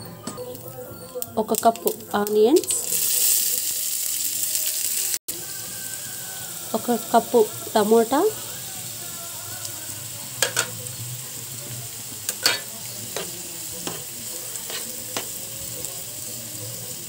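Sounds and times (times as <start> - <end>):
vegetables sizzling in oil: 0.5 - 17.0
spatula scraping and tapping pan: 12.3 - 15.4.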